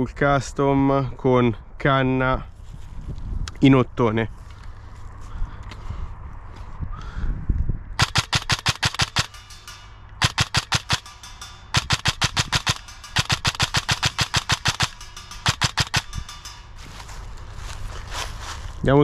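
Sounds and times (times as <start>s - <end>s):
airsoft rifle full-auto bursts: 8.0s - 9.3s, 10.2s - 11.0s, 11.7s - 16.1s.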